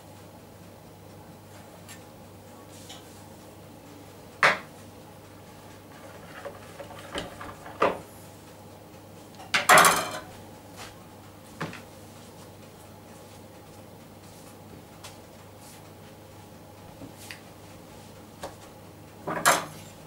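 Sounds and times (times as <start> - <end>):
utensils knocking on worktop: 9.6 - 10.3.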